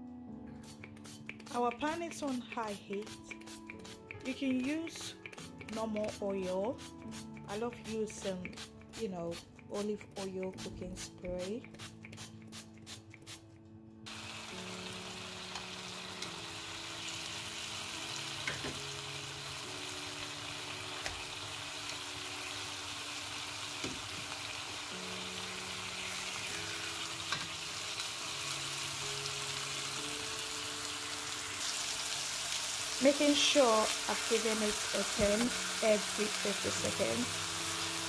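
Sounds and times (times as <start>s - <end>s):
steaks sizzling in oil: 14.1s - 38.0s.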